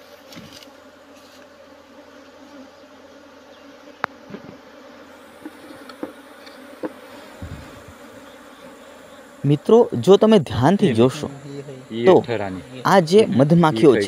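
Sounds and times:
honey bees buzzing: 0.0s - 14.0s.

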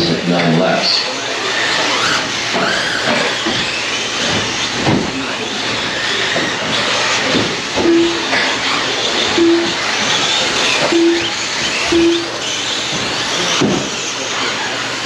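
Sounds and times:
electric motors whining: 1.0s - 15.0s
short beep: 7.8s - 8.2s, 9.4s - 9.8s, 10.9s - 12.4s.

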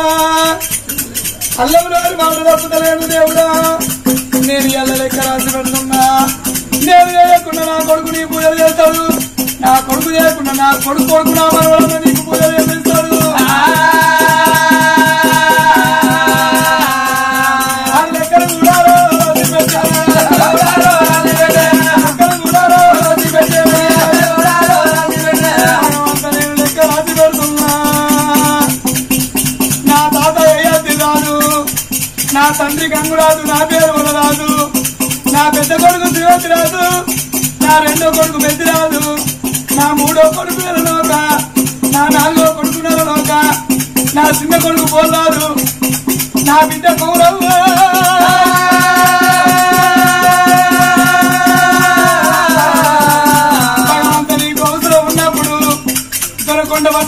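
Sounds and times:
fast jingling percussion: 0.0s - 57.0s
folk singing with chorus: 12.0s - 28.8s, 46.9s - 55.2s.

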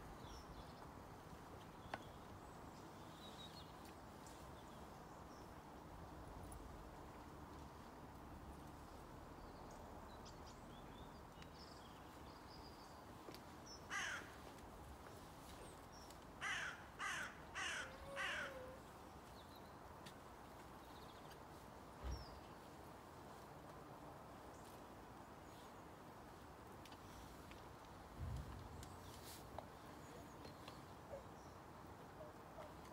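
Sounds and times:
crow cawing: 13.9s - 14.4s, 16.4s - 18.8s.

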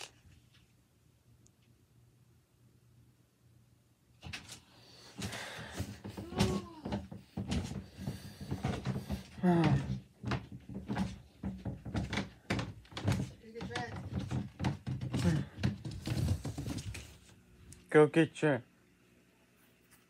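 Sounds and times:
knocks and bumps: 5.2s - 17.1s.

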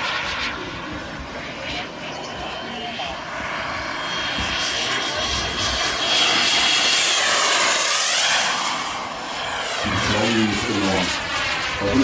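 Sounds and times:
model jet turbine whine and roar: 0.0s - 12.0s.

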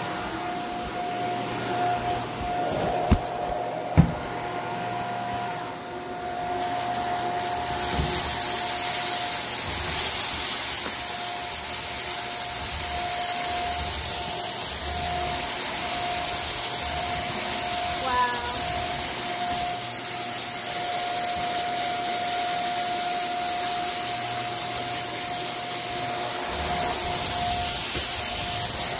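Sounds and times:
upright vacuum cleaner running: 0.0s - 28.9s.

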